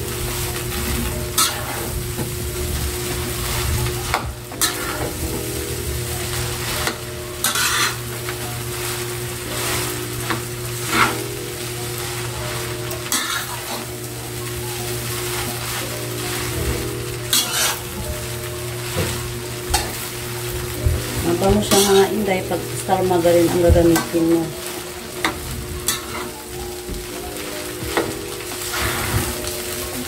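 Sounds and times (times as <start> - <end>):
food sizzling in a wok: 0.0 - 30.0
metal spatula scraping wok: 1.3 - 2.0, 3.4 - 5.6, 6.2 - 8.4, 9.0 - 11.3, 13.0 - 13.9, 15.3 - 18.0, 21.6 - 23.4, 25.2 - 26.4, 28.0 - 29.5.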